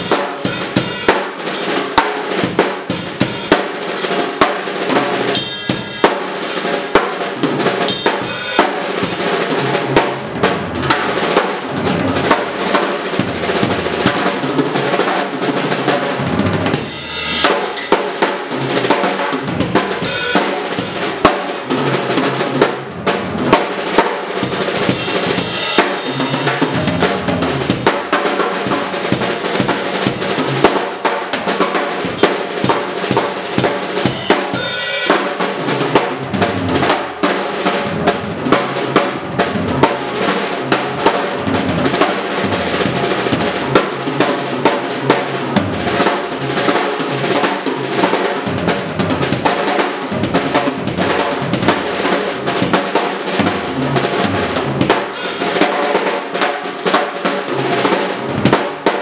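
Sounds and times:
snare and tom rolls: 0.0s - 59.0s
cymbal hits: 5.3s - 6.3s, 16.8s - 18.2s
bass drum: 9.5s - 12.5s, 16.1s - 23.6s, 24.4s - 28.0s, 32.1s - 34.8s, 50.1s - 55.1s.

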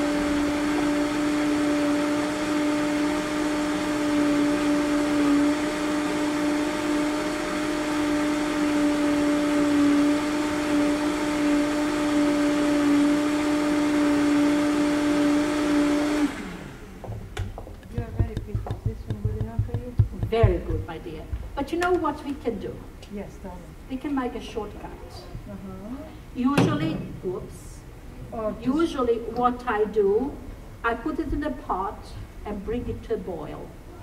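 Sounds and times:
blender running: 0.0s - 17.1s.

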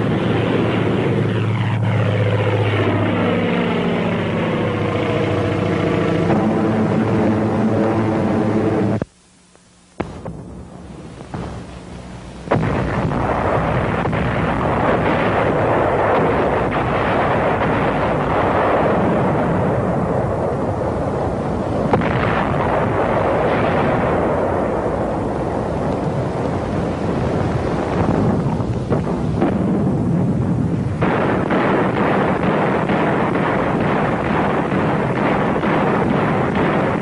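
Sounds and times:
sharp blast: 0.0s - 9.0s, 10.0s - 25.8s, 27.9s - 37.0s
continuous din of explosions: 0.0s - 9.1s, 10.0s - 37.0s
low steady hum: 0.0s - 37.0s.

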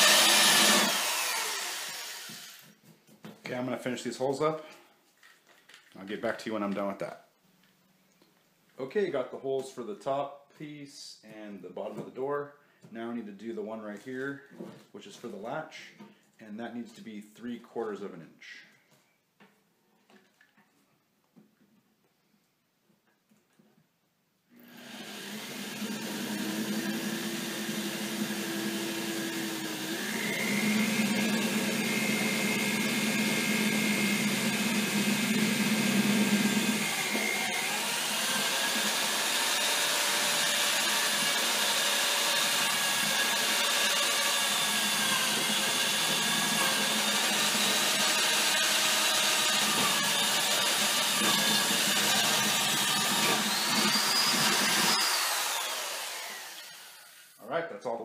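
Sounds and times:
electric drill boring acrylic: 0.0s - 2.7s, 24.6s - 57.4s.

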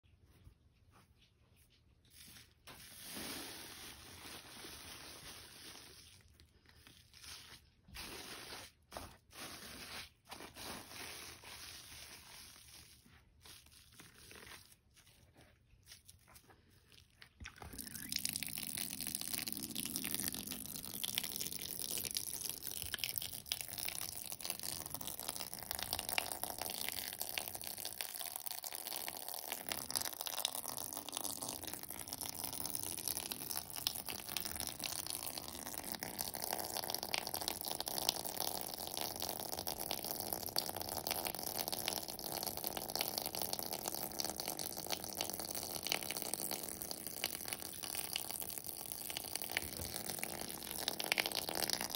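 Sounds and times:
wet sponges squelching: 0.1s - 24.7s.

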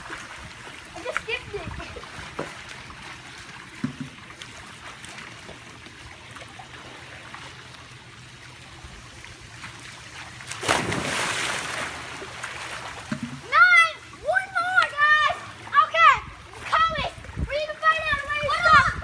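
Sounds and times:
pool water lapping: 0.0s - 19.0s
loud water splash: 10.4s - 14.1s.

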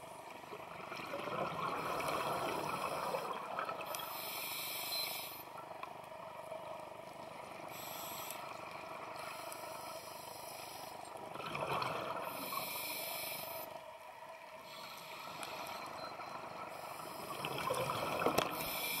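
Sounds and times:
diver breathing through regulator: 7.7s - 8.6s, 12.2s - 13.7s, 18.5s - 19.0s.

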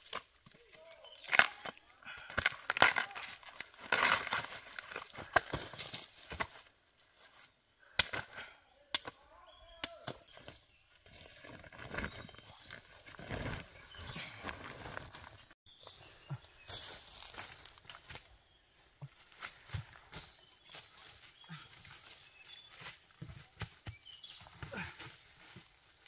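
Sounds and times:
husks tearing: 0.8s - 5.8s
machete chopping bamboo: 2.3s - 6.5s, 7.9s - 9.2s.

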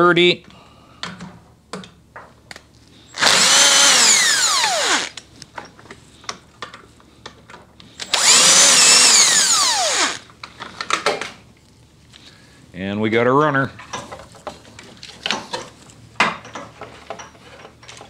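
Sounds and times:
impact driver motor whine: 3.1s - 5.2s, 8.0s - 10.2s.

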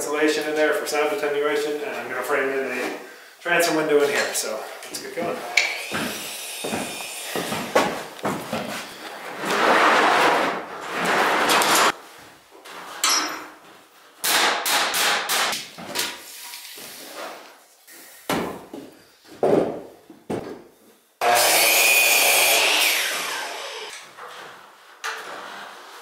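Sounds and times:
power saw running: 21.2s - 23.9s.

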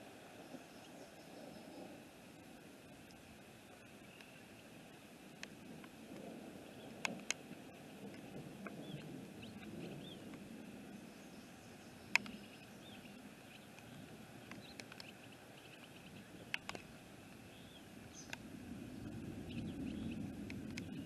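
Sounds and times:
low wind rush: 0.0s - 21.0s
bird chirping: 8.7s - 10.3s, 10.9s - 16.8s, 17.5s - 18.4s, 19.0s - 21.0s
sharp ticks: 12.1s - 12.4s, 13.7s - 15.2s, 16.5s - 16.9s, 20.4s - 21.0s.

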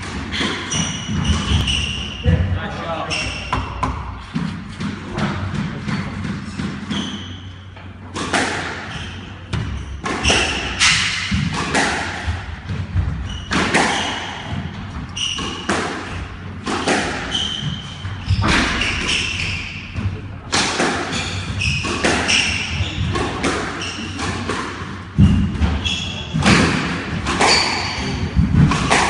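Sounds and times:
shoes squeaking on wooden floor: 0.3s - 2.3s
squash ball hits: 8.1s - 29.0s.

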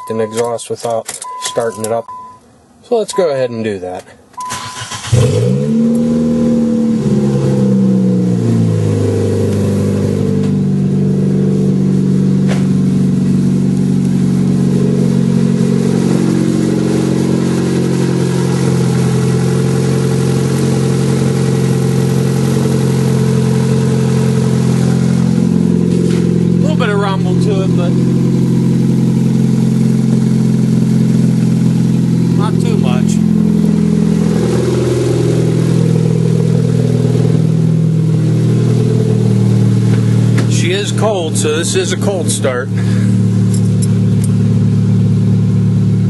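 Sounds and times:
unmuffled car engine starting and idling: 0.0s - 46.0s.

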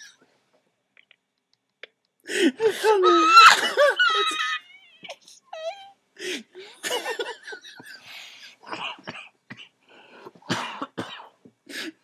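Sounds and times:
people laughing hard: 6.7s - 8.0s.

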